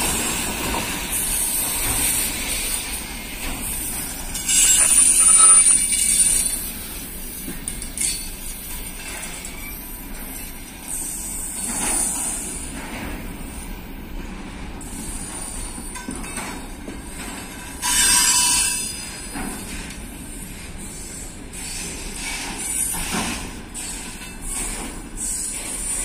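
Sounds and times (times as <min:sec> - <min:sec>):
freight train rumbling past: 0:00.0 - 0:26.0
high wheel squeal: 0:03.8 - 0:06.6.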